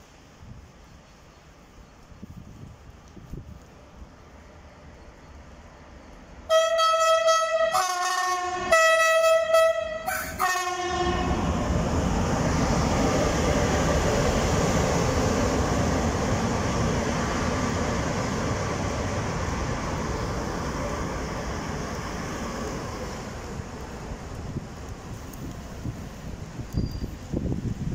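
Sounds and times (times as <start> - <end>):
train wheels rumbling on rails: 0.0 - 27.9
two-tone train horn: 6.5 - 11.5.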